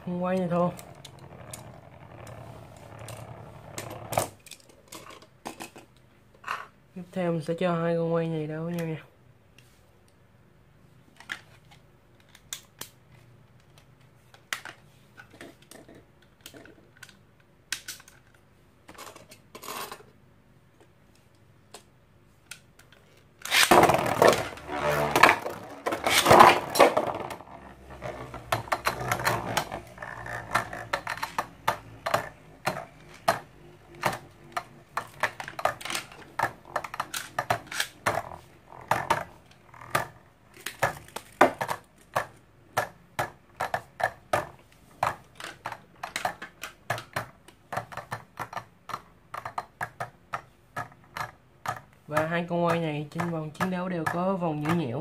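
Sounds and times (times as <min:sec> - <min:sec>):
spinning tops launching: 0:23.5 - 0:34.5.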